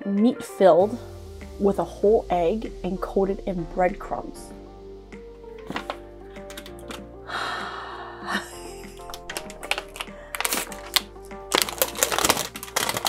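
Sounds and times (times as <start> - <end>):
background music: 0.0 - 13.0
plastic packaging crinkling: 9.1 - 13.0.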